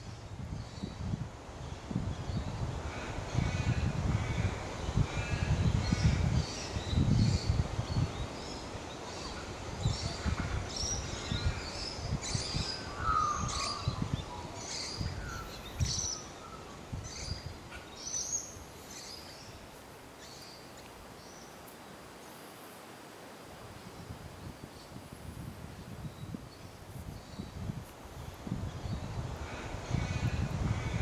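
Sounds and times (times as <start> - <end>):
gusty low rumble: 25.2 - 31.0.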